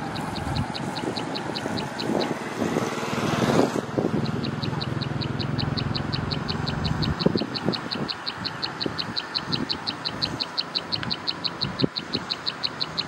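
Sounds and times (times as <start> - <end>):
rapid high chirping: 0.0 - 2.4, 4.0 - 13.0
low engine hum: 0.0 - 13.0
passing vehicle: 0.0 - 13.0.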